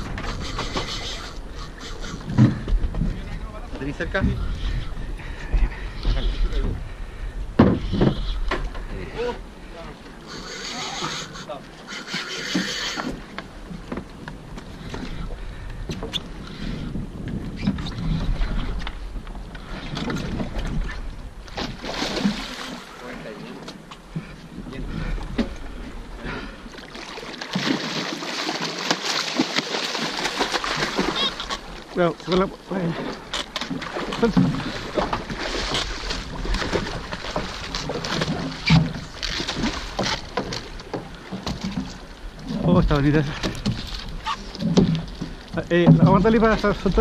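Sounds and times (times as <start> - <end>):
wind buffeting microphone: 0.0 - 9.8, 13.0 - 22.4, 24.0 - 26.6
water splashing against boat hull: 17.2 - 47.0.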